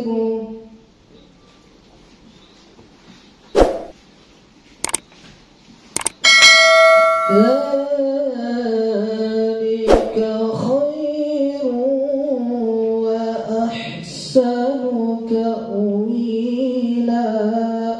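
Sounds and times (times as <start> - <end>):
clicks: 4.8 - 5.0, 6.0 - 6.2
bright bell ding: 6.1 - 8.0.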